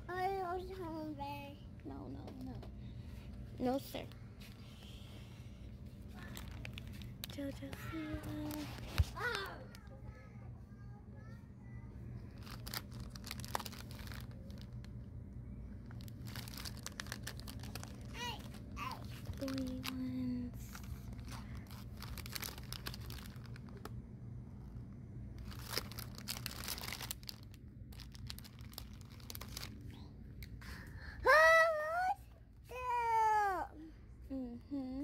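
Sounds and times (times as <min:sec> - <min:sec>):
child's voice: 0:00.0 - 0:02.7, 0:07.3 - 0:12.3, 0:18.1 - 0:20.8, 0:31.2 - 0:35.0
store hum: 0:00.0 - 0:35.0
plastic packaging crinkling: 0:06.2 - 0:09.9, 0:12.3 - 0:24.0, 0:25.3 - 0:30.0.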